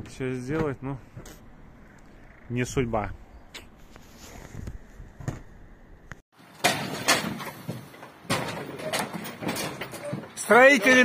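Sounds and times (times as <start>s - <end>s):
knocks and clangs on steel frame: 6.4s - 11.0s.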